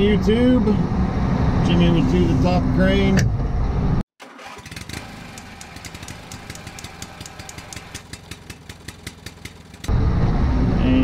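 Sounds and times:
engine idling: 0:04.2 - 0:10.2.

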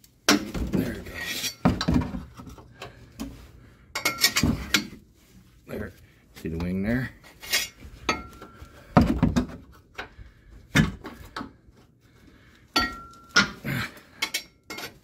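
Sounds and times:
metal tools clanking on suspension: 0:03.9 - 0:05.0, 0:14.2 - 0:15.0.

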